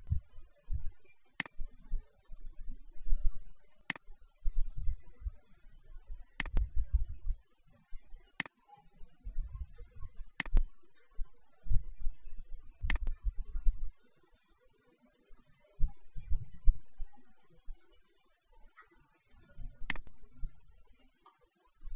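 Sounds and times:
low muffled noise: 0.0 - 8.4, 9.0 - 14.0, 15.8 - 17.8
computer mouse clicks: 1.4 - 1.6, 6.4 - 6.7, 10.4 - 11.0, 12.8 - 13.2, 19.8 - 20.6.

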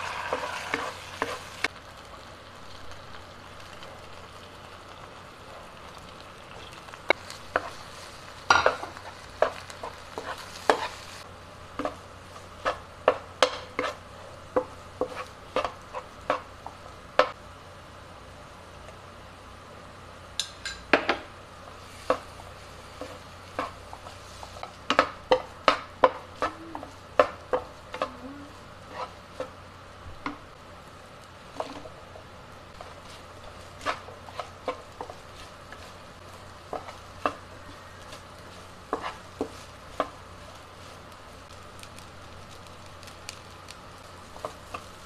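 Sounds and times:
spatula scraping a wok: 0.0 - 1.7, 7.3 - 14.1, 15.0 - 16.5, 21.7 - 28.1, 28.8 - 29.6, 32.7 - 41.1
faint sizzle: 0.0 - 45.0.

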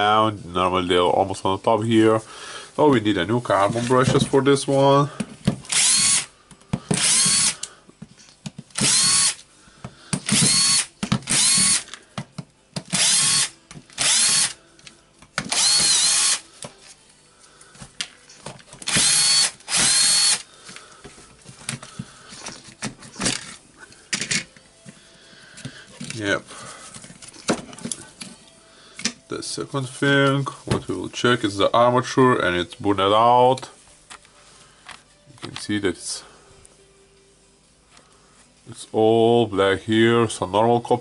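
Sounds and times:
cordless drill motor whine: 5.7 - 6.3, 7.0 - 7.6, 8.8 - 9.4, 10.3 - 11.8, 12.9 - 14.6, 15.5 - 16.4, 18.8 - 20.5.

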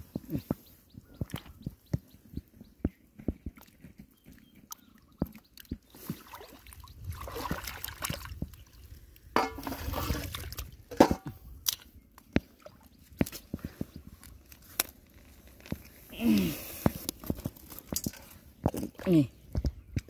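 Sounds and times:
hands splashing in muddy water: 4.7 - 8.7.

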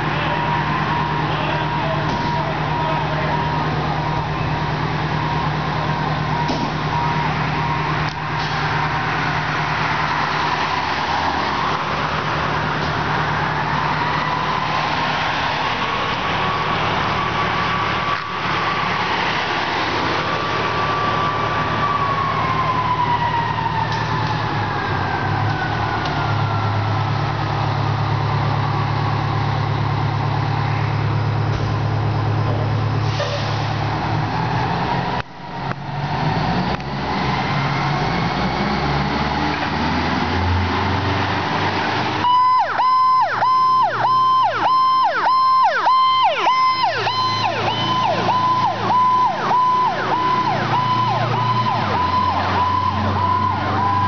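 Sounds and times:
fire truck engines running: 0.0 - 54.0
fire engine siren winding: 0.1 - 19.2, 20.1 - 27.5, 42.2 - 54.0.

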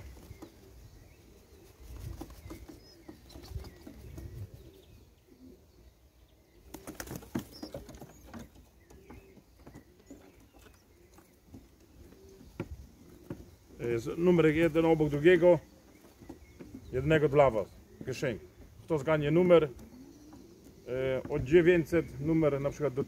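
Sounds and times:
pigeons cooing: 0.0 - 23.0
wings flapping: 1.6 - 4.6, 6.6 - 8.7.

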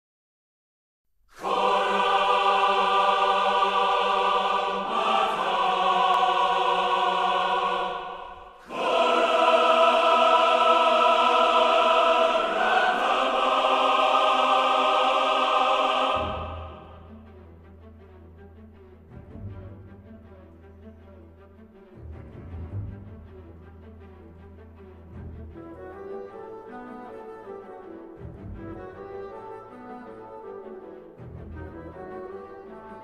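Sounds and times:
choir singing held chords: 1.4 - 17.2.

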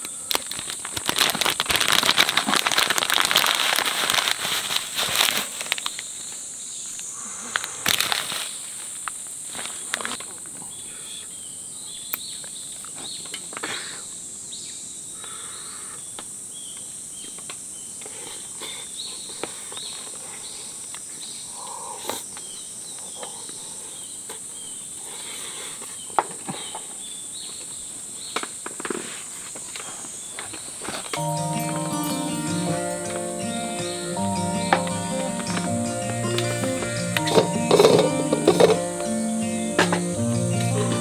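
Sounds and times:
insect buzz: 4.3 - 31.6.

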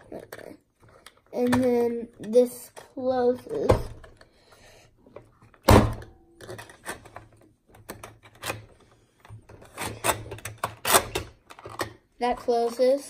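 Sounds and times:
plastic thunk: 5.6 - 6.7
small plastic clicks and rattles: 9.5 - 12.8.

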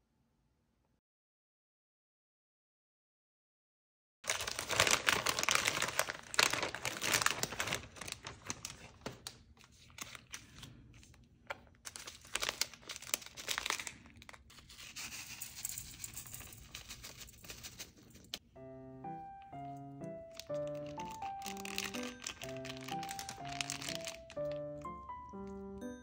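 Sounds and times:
plastic packaging crinkling: 4.3 - 18.4, 19.4 - 26.0.

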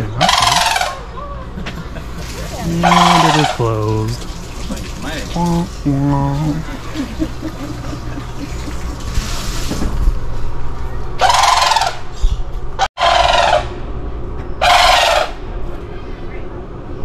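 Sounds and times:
crane bird calling: 0.0 - 1.5, 2.7 - 3.8, 11.2 - 12.4, 13.0 - 13.7, 14.6 - 15.4.

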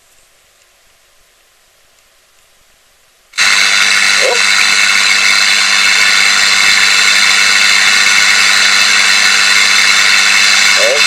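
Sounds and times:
loud static hiss: 0.0 - 11.0
low hum: 3.3 - 11.0.

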